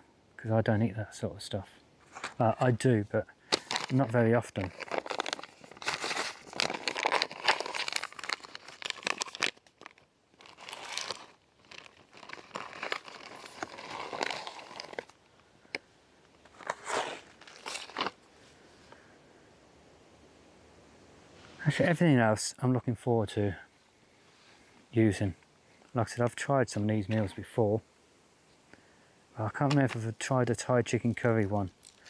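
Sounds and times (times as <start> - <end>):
plastic bags crinkling: 3.5 - 15.2, 16.5 - 18.2, 31.7 - 32.0.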